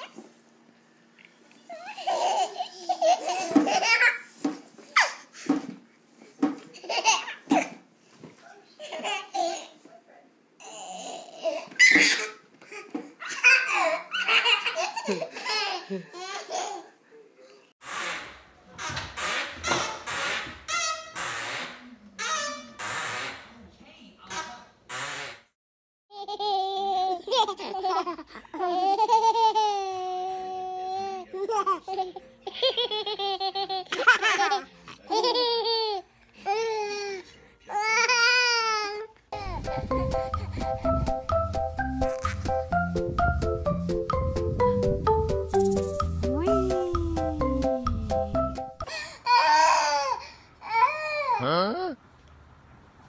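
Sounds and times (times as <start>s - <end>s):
baby laughing: 1.7s - 4.3s, 26.1s - 36.1s, 39.4s - 41.0s, 46.4s - 48.1s.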